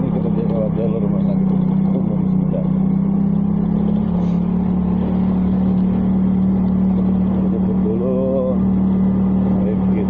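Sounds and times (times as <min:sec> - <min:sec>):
motorcycle engine cruising: 0:00.0 - 0:10.0
road and wind noise: 0:00.0 - 0:10.0.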